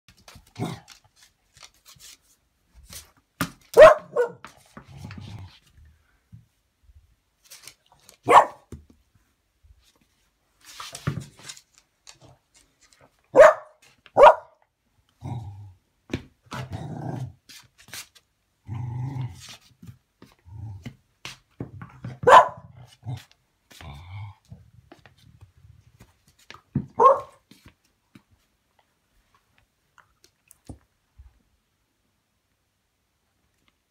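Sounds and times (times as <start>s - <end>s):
dog barking: 3.8s - 4.4s, 8.2s - 8.7s, 13.3s - 14.6s, 22.2s - 22.7s, 27.0s - 27.4s
dog growling: 15.2s - 15.8s, 18.6s - 19.5s.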